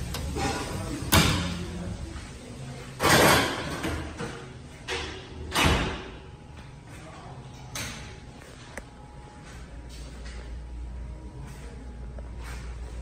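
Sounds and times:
steady low hum: 0:03.6 - 0:13.0.

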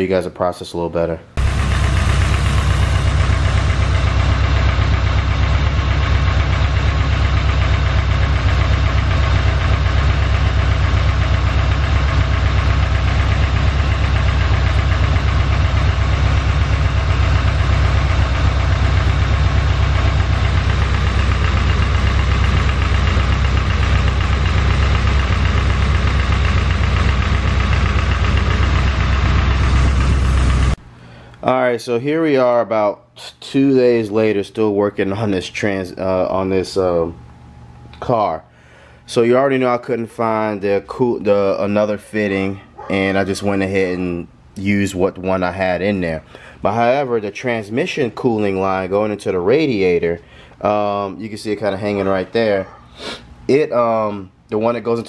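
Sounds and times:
car engine idling: 0:01.4 - 0:30.9.

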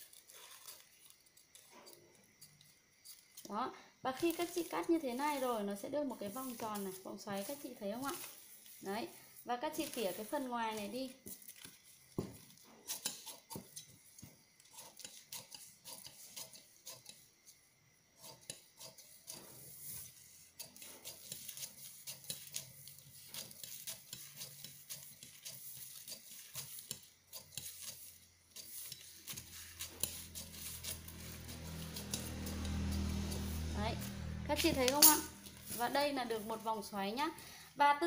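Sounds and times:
shears snipping paper: 0:04.2 - 0:09.0, 0:20.6 - 0:36.9.

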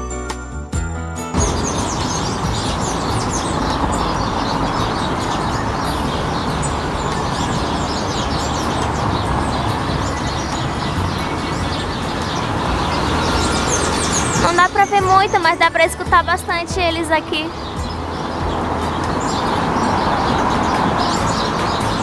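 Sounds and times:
steady low rumble: 0:01.4 - 0:14.6
chorus of small birds chirping: 0:01.4 - 0:22.0.

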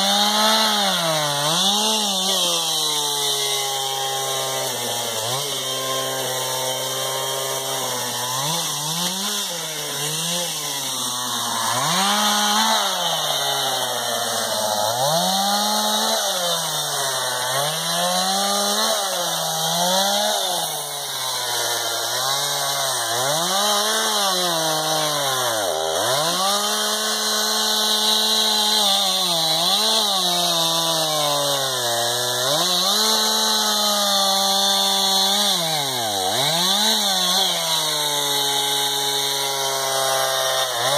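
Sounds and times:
chainsaw engine revving: 0:00.0 - 0:40.9.

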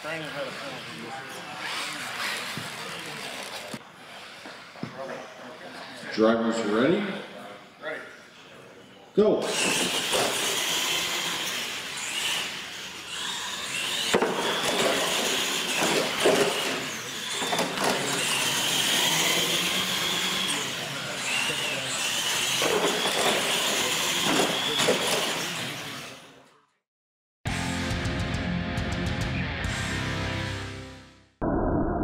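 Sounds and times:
rc truck motors whining: 0:00.0 - 0:04.8, 0:08.8 - 0:26.8.

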